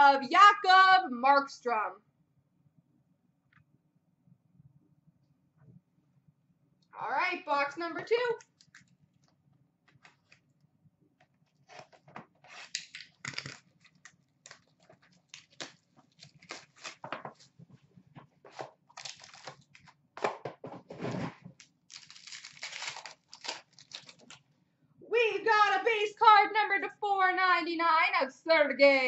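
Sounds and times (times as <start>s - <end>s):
packaging tearing and crinkling: 11.7s - 17.5s, 18.6s - 19.9s, 21.1s - 24.4s.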